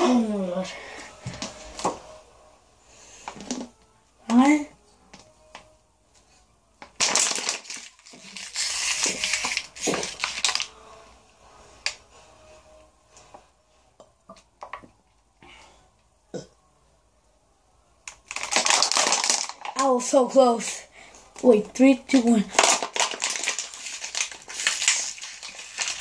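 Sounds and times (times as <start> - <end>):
plastic bottle crackling: 6.8 - 10.7, 18.0 - 20.0, 22.1 - 26.0.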